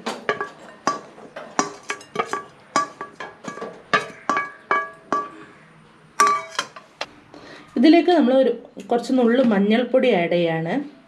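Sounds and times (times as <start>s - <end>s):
spoon tapping steel plate: 0.2s - 5.4s, 6.2s - 6.9s.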